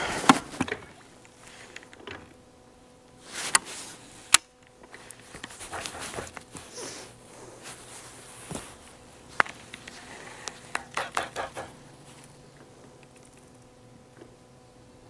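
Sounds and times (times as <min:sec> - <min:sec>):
fishing gear clicks: 0:09.3 - 0:13.7.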